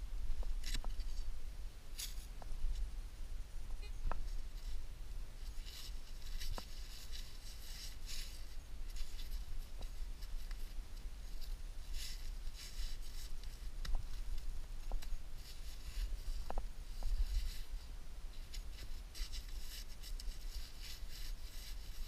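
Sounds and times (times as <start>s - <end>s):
hands scraping earth: 5.4s - 22.0s.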